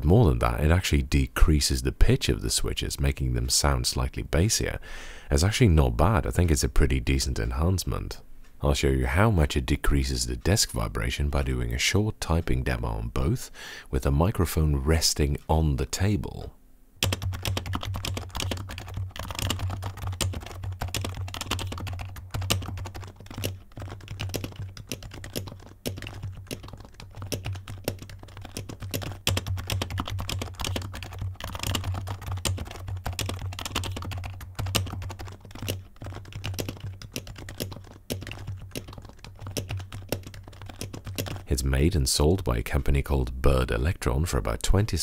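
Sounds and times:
fast typing on keyboard: 17.0 - 41.5.

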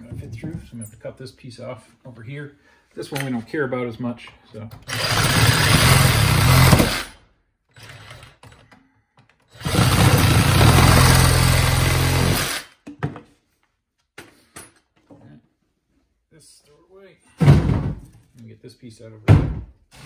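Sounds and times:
reciprocating saw cutting pipe: 4.9 - 7.1.

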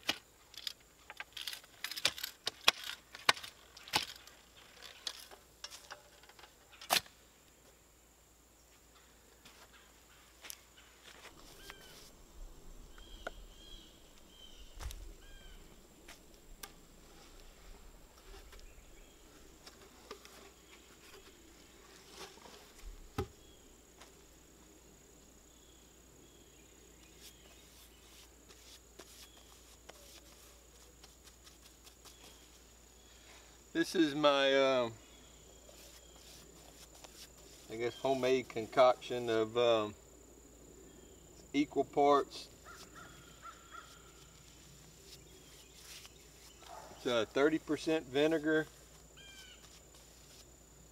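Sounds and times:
insect drone: 0.1 - 50.9
bird chirps: 9.7 - 15.8, 49.2 - 49.7
knocks of tools and timber: 22.2 - 23.4.

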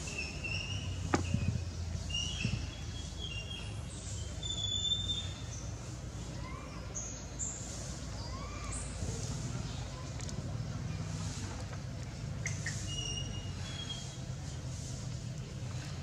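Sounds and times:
birds chirping: 0.0 - 5.9.

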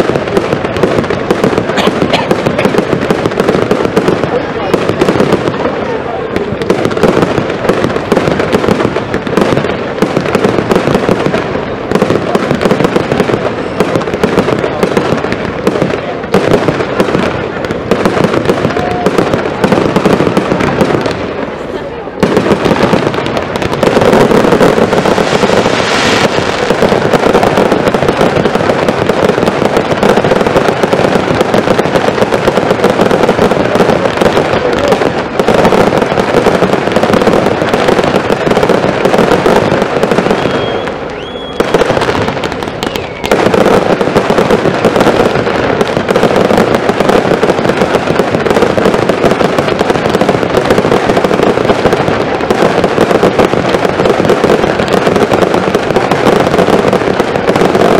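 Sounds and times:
fireworks bangs and crackle: 0.0 - 57.9
firework whistle: 25.1 - 26.7, 40.1 - 42.0, 42.7 - 43.6.

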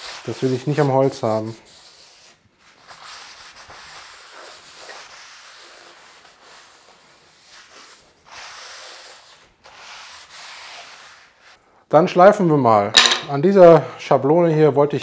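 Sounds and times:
cloth rubbing on metal table: 0.0 - 11.6.

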